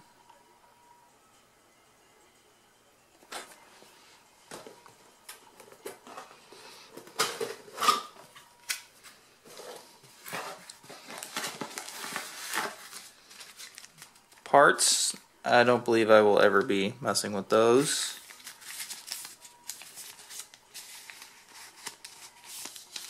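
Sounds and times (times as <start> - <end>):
paper rustling: 9.5 - 14.2, 17.8 - 23.0.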